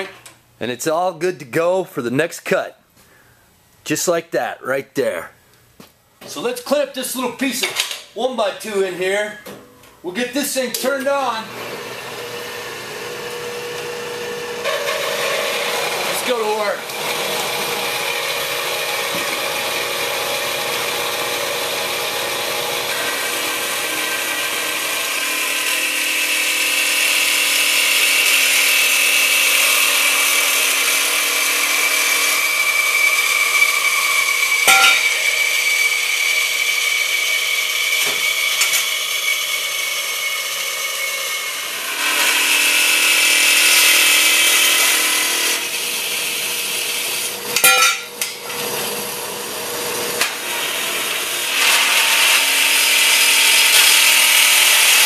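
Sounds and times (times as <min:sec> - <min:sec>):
bandsaw blade screeching on steel: 0:33.0 - 0:35.8
sharp metal clanks: 0:34.7 - 0:35.2, 0:47.6 - 0:48.4.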